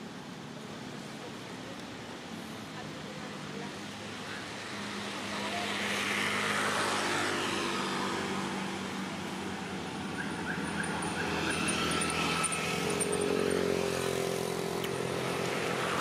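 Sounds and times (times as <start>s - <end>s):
motor vehicle passing by: 3.3s - 16.0s.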